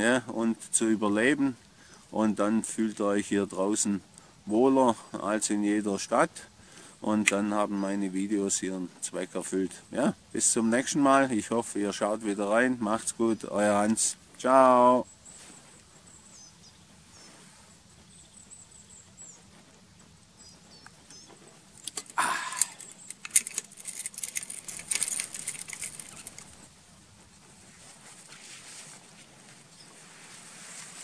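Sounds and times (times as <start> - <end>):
screw cap clicking and scraping: 21.8 - 26.6
footsteps through undergrowth: 27.5 - 31.0.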